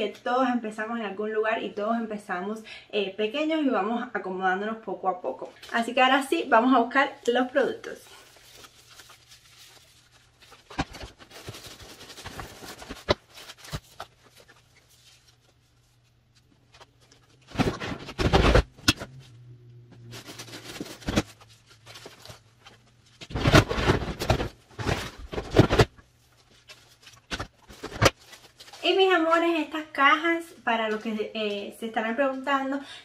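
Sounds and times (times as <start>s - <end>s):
faint low hum: 7.0s - 32.4s
plastic knocking and scraping: 17.4s - 19.2s.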